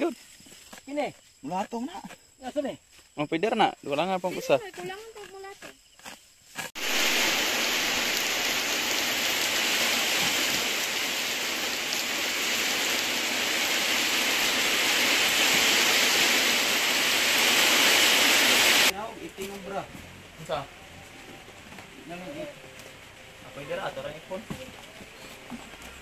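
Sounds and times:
steady rain: 6.8 - 26.0.

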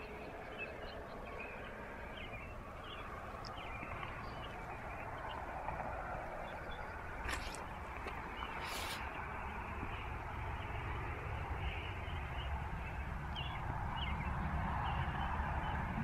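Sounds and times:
rural outdoor background noise: 0.0 - 16.0
short rushes of hiss: 8.6 - 9.1.

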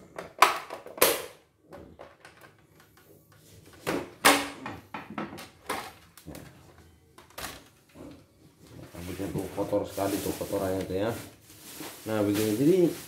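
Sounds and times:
plastic clacks and knocks: 3.8 - 8.2
handling rustle: 8.8 - 13.0.

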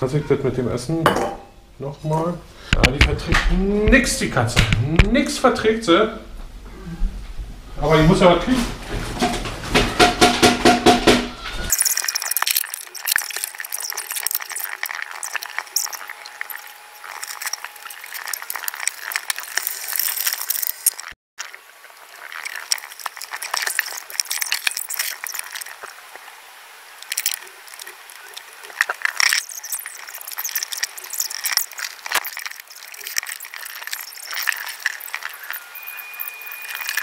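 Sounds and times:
glass and crockery clinking: 1.1 - 1.6, 28.8 - 37.0
packaging rustling: 11.7 - 26.0, 27.0 - 37.0.

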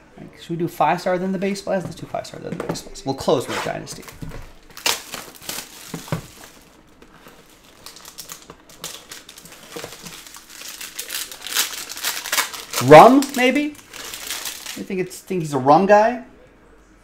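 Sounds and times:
plastic shrink wrap crinkling and tearing: 3.6 - 15.2.

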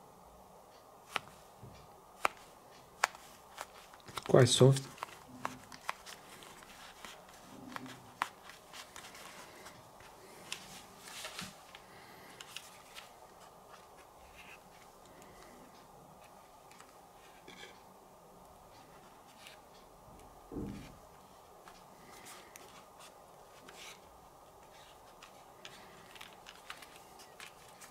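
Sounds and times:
packaging handling clicks and rustles: 2.2 - 15.3, 21.7 - 27.9.

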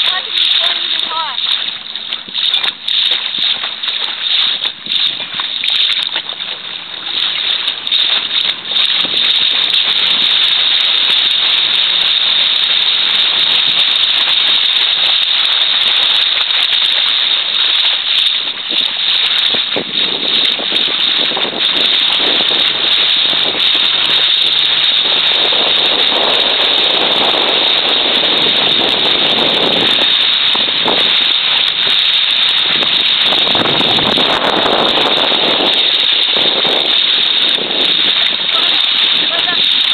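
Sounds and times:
water splashing against boat: 0.0 - 39.9
wind rushing: 32.6 - 39.9.

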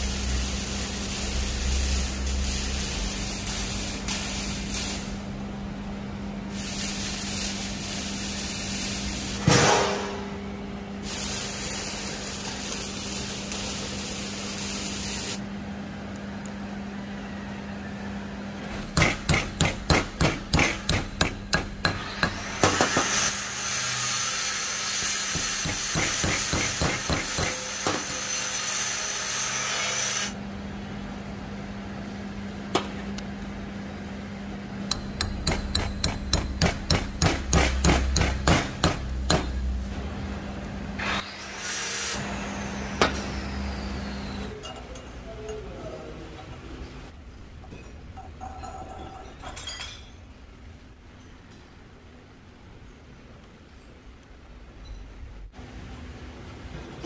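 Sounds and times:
steady hiss: 6.5 - 9.4.

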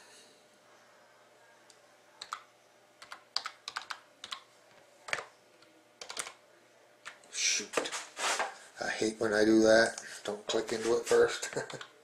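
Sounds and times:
typing on keyboard: 2.2 - 2.4, 3.0 - 4.5, 6.0 - 6.4.

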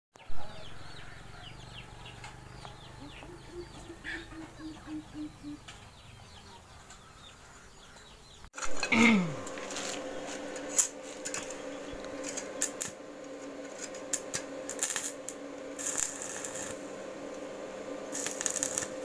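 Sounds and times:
low bird calls: 0.3 - 8.5
high falling bird peeps: 3.0 - 5.8.

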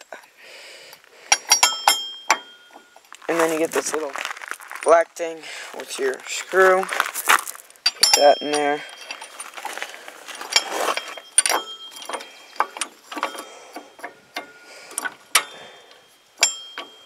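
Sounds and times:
small metallic clicks and clinks: 1.3 - 3.1, 7.8 - 17.0.

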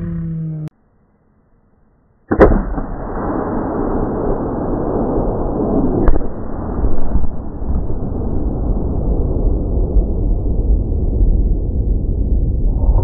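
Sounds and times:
rifle shot: 2.3 - 7.9
sharp crack: 2.3 - 8.0
explosion blast: 2.3 - 13.0
rushing rumble of fireball: 2.7 - 13.0.

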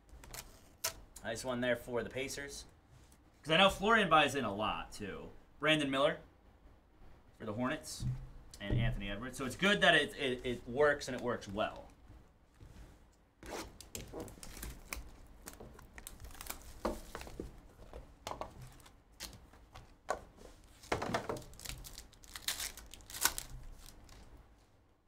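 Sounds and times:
wrappers ripping and crackling: 13.6 - 17.4, 20.6 - 24.3.

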